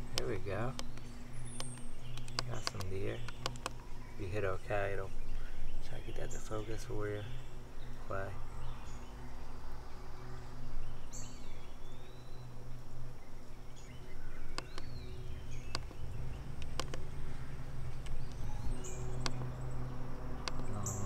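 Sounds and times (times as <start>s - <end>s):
low steady hum: 0.0s - 21.0s
sharp clicks: 0.1s - 3.8s, 14.5s - 15.0s, 15.6s - 16.0s, 16.6s - 17.1s, 19.1s - 19.6s, 20.4s - 21.0s.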